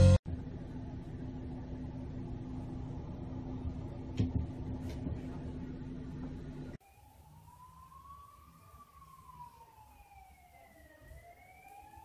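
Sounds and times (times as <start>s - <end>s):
faint siren wailing: 6.8s - 12.0s.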